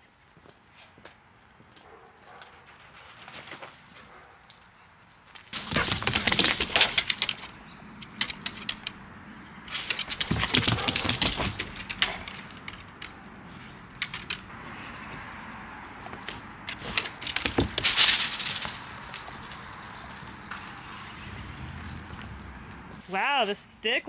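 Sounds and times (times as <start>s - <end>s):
jingling clatter: 3.2s - 9.1s, 9.7s - 14.5s, 16.7s - 22.2s
dog running through dry leaves: 17.5s - 19.8s.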